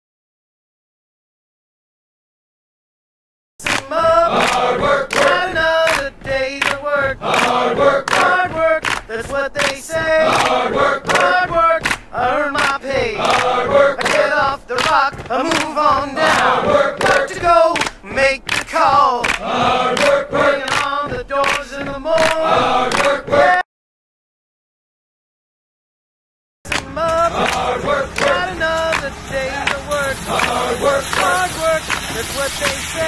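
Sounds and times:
steady beat: 3.6s - 23.6s, 26.7s - 33.0s
voices chanting and singing: 3.6s - 23.6s, 26.7s - 33.0s.

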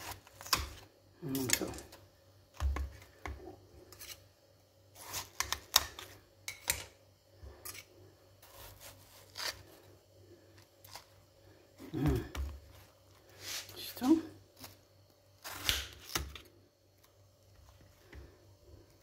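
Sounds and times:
knife cutting watermelon on tray: 7.6s - 9.7s.

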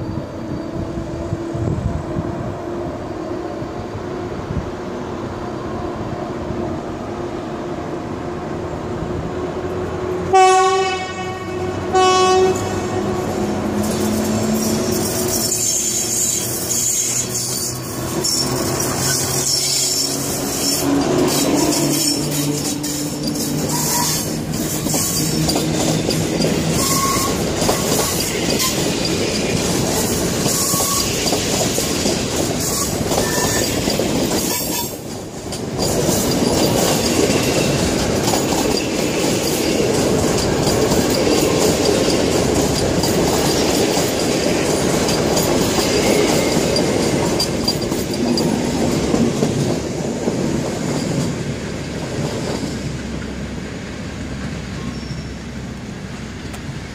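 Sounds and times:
train wheels clattering over rail joints: 12.6s - 53.3s
faint wheel squeals: 54.8s - 55.6s.

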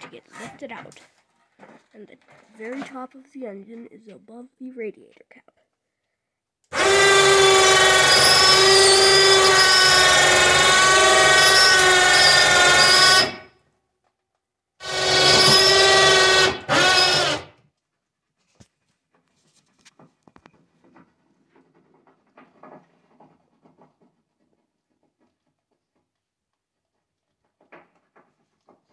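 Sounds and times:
electric hoist motor running: 6.7s - 13.5s, 14.8s - 17.5s.

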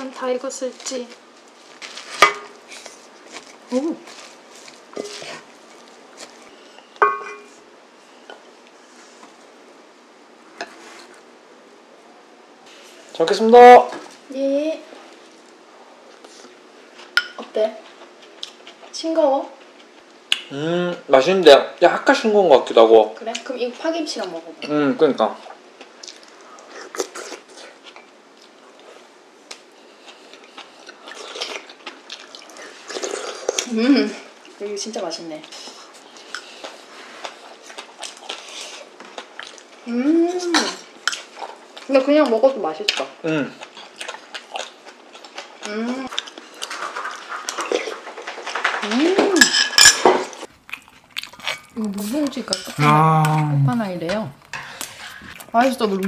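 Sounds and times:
quiet chewing: 0.7s - 6.9s, 17.8s - 19.0s, 25.4s - 33.7s, 35.4s - 39.9s, 42.8s - 48.9s, 50.3s - 53.4s, 54.4s - 55.8s
ringing clink against pot: 7.0s - 7.5s
wooden spatula scraping pot: 54.5s - 55.4s.

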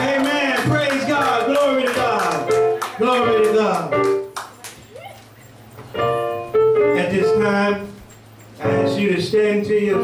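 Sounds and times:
keyboard music held notes: 2.1s - 4.4s, 5.9s - 10.0s.

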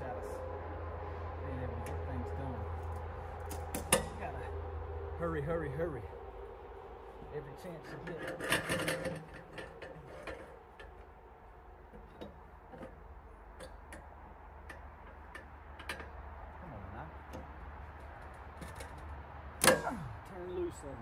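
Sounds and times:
distant road traffic rumble: 0.0s - 21.0s.

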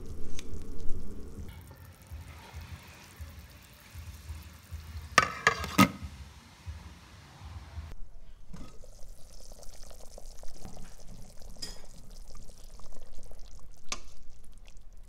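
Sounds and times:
stew bubbling in a pot: 0.0s - 5.9s, 8.5s - 15.0s
metal ladle stirring: 5.1s - 6.0s.

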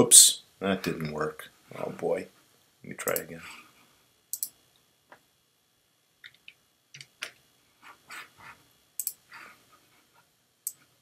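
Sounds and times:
mouse and keyboard clicks: 4.4s - 4.6s, 9.0s - 9.2s.

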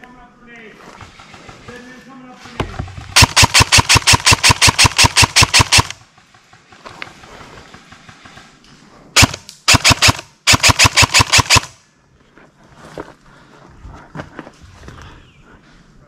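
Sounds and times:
airsoft rifle rapid shots: 3.0s - 6.8s, 9.2s - 11.8s.

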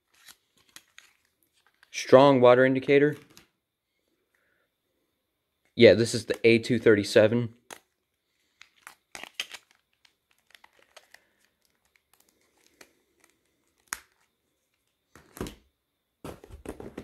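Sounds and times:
plastic phone clicks and rustles: 7.6s - 15.6s.

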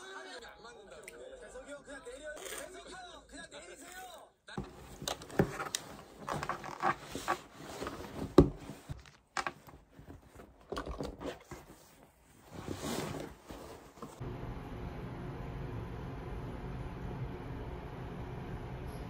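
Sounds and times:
canvas bag rustling: 4.6s - 14.2s.

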